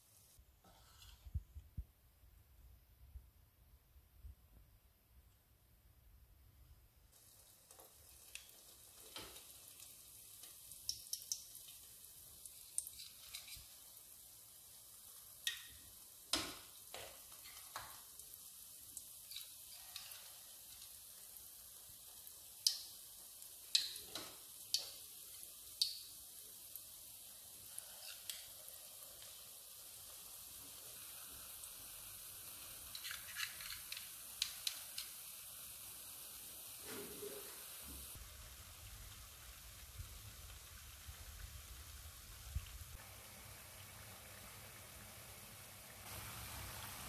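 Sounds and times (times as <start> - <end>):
oil sizzling in a pan: 7.1 - 47.0.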